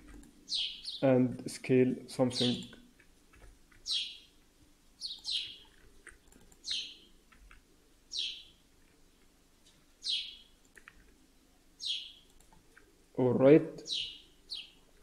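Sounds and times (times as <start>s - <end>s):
bird chirping: 0.4s - 1.1s, 3.8s - 4.4s, 5.0s - 5.8s, 6.6s - 7.1s, 8.1s - 8.6s, 10.0s - 10.6s, 11.8s - 12.4s, 13.8s - 14.9s.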